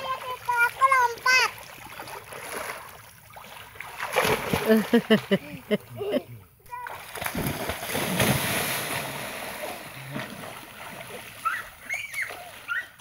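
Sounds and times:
water sloshing: 0:00.0 - 0:13.0
person splashing into river: 0:01.6 - 0:05.3, 0:06.8 - 0:12.8.

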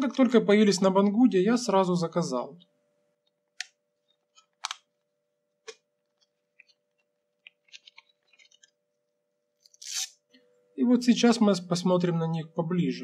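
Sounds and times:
strap and buckle crackles and clicks: 0:05.6 - 0:08.8.

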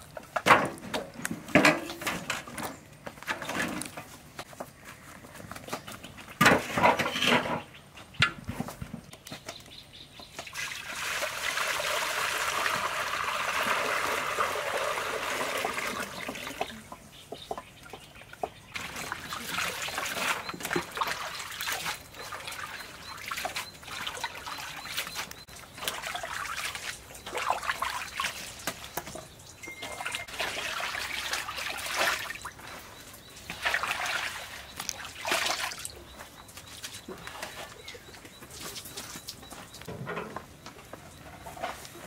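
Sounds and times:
water pouring and splashing: 0:10.3 - 0:16.8, 0:18.7 - 0:37.7.

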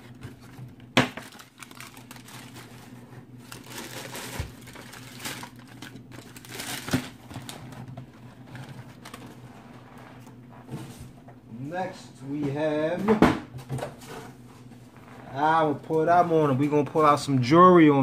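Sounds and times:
tissue paper crinkling: 0:01.2 - 0:10.4.

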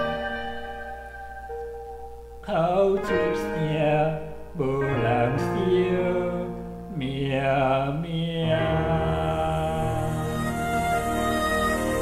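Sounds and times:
person singing a ballad: 0:02.4 - 0:12.0.

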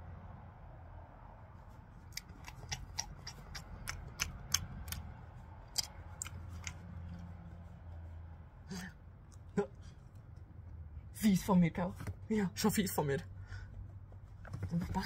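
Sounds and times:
person chewing meat: 0:02.0 - 0:07.4.

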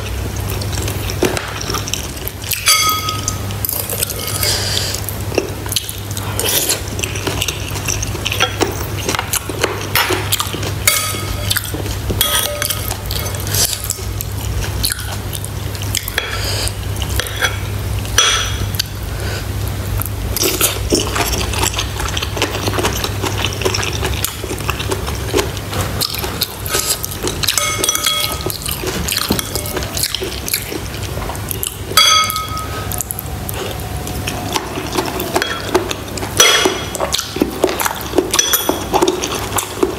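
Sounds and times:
wet eating and chewing: 0:00.0 - 0:39.9
cutlery clinking on ceramic bowls: 0:01.2 - 0:04.6, 0:07.2 - 0:13.9, 0:18.2 - 0:18.7, 0:26.0 - 0:30.7, 0:31.9 - 0:33.0, 0:34.5 - 0:39.9.

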